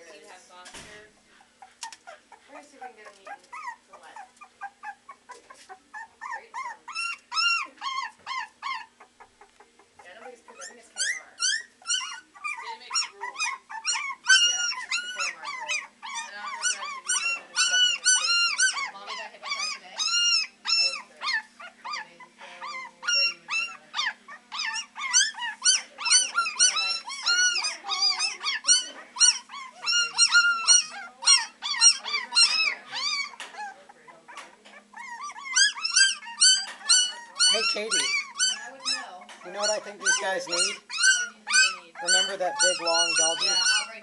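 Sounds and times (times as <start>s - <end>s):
puppies baying and howling: 1.9s - 9.3s, 10.0s - 44.0s.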